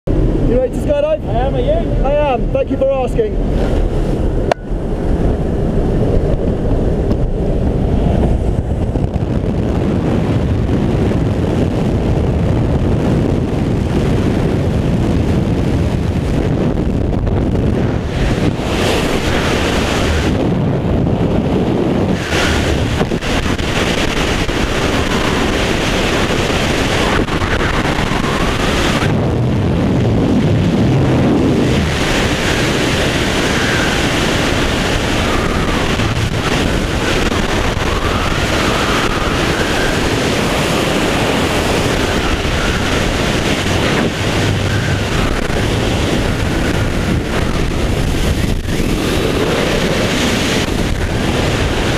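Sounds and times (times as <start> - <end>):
wind rushing over microphone: 0.0 - 51.9.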